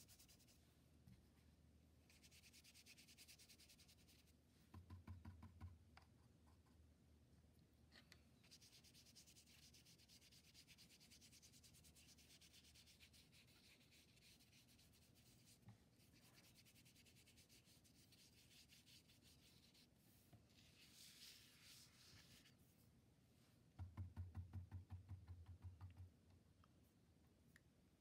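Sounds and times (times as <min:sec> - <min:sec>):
paintbrush scrubbing on paper: 0:00.0 - 0:00.6, 0:02.1 - 0:04.3, 0:08.4 - 0:22.7.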